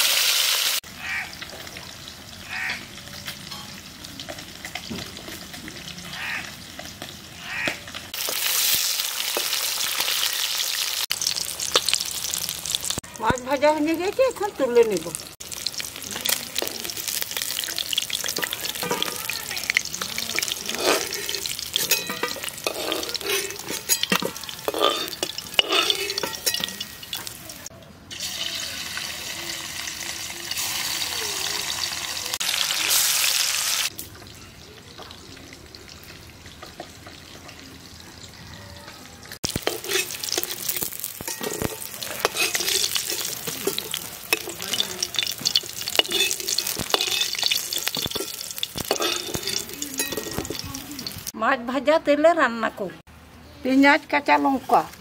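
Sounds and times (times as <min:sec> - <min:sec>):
fish sizzling in hot oil: 0:00.0 - 0:38.3, 0:39.4 - 0:51.4
metal spatula scraping a wok: 0:16.1 - 0:27.4, 0:39.5 - 0:51.3.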